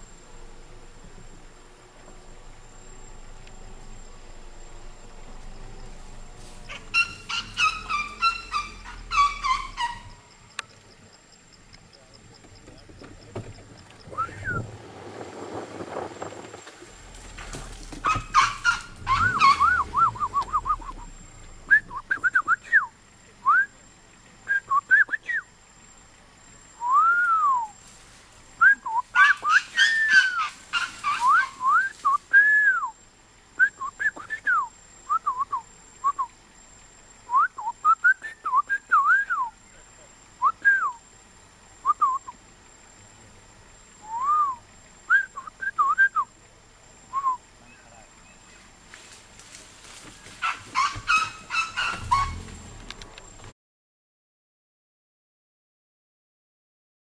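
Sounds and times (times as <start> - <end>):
whistled notes: 14.1 - 14.7, 19.2 - 23.8, 26.8 - 27.8, 40.4 - 41.0, 44.0 - 46.3.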